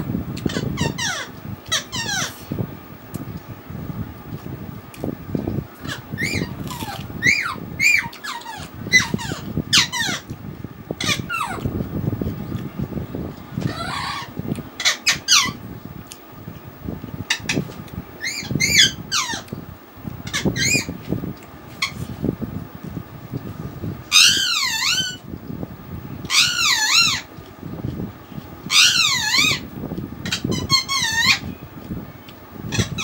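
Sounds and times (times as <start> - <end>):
soft eating noises: 0.3 - 9.4, 11.4 - 14.8, 15.6 - 18.2, 21.0 - 23.7, 27.3 - 28.7, 31.6 - 32.6
small animal squeaky cries: 5.8 - 10.2, 13.6 - 15.6, 24.1 - 25.2, 26.3 - 27.3, 28.7 - 29.6.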